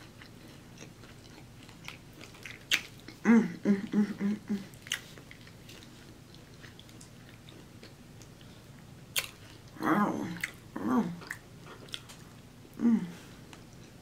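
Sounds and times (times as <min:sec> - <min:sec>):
chewing with wet mouth clicks: 0:00.0 - 0:03.2, 0:04.7 - 0:09.8, 0:10.4 - 0:10.6, 0:11.2 - 0:12.4, 0:13.5 - 0:14.0
person humming mm: 0:03.2 - 0:04.8, 0:12.7 - 0:13.4.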